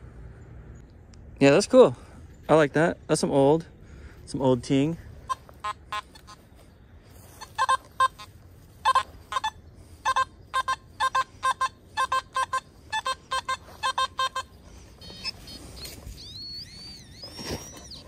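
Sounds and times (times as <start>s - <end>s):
metal detector beeping: 5.2s - 6.4s, 7.3s - 18.0s.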